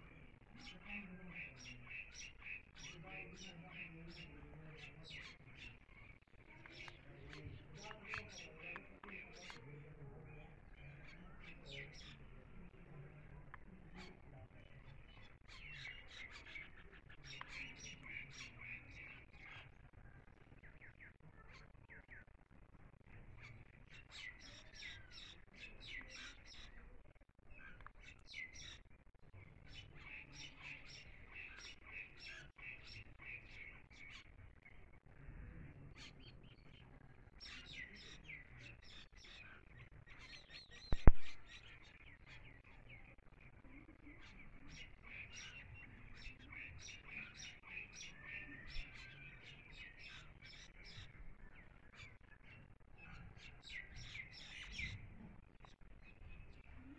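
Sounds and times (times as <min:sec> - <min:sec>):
sharp click: 0:41.0 - 0:41.4.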